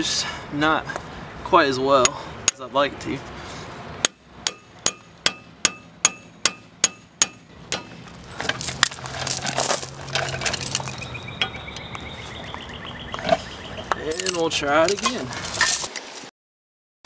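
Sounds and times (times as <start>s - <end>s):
metal tools clinking on gravel: 7.8s - 11.6s, 13.2s - 16.3s.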